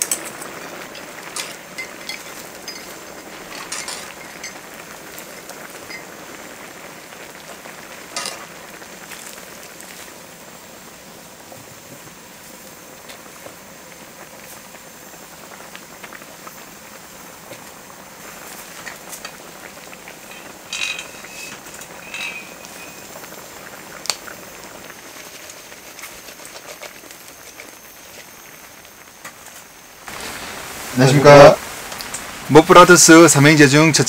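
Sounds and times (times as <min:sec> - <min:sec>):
rain falling: 0:00.0 - 0:34.0
ringing clinks: 0:01.4 - 0:03.0, 0:20.3 - 0:23.0.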